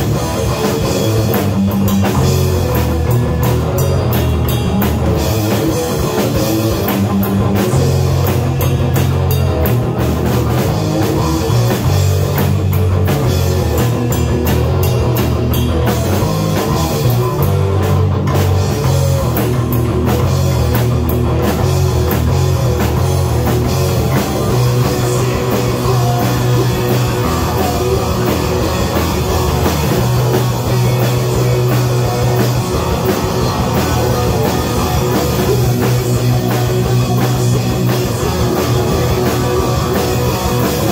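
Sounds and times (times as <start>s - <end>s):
live rock band playing: 0.0s - 40.9s.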